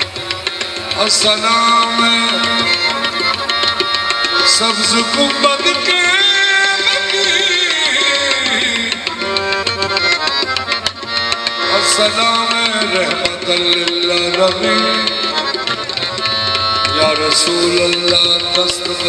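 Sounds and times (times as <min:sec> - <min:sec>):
fast tabla rhythm: 0:00.0 - 0:19.0
harmonium melody: 0:00.0 - 0:19.0.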